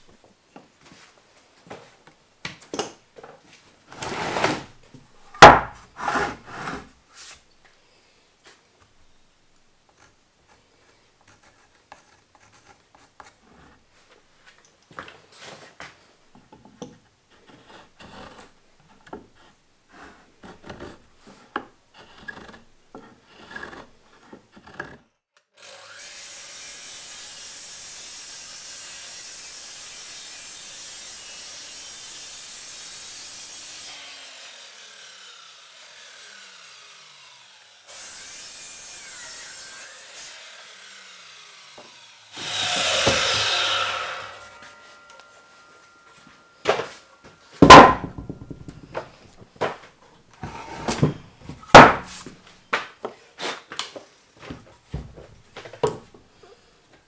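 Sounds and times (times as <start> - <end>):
mitre saw cutting timber: 3.9 - 4.7, 5.3 - 7.0, 19.3 - 49.1, 50.4 - 52.4
timber scratching and knocks: 3.9 - 4.8, 5.4 - 7.4, 42.4 - 47.0, 47.6 - 49.8, 50.4 - 52.4.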